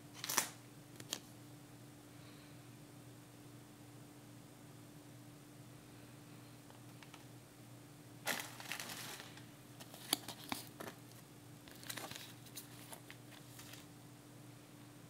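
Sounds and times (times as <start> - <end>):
plastic packaging crinkling: 8.2 - 13.9.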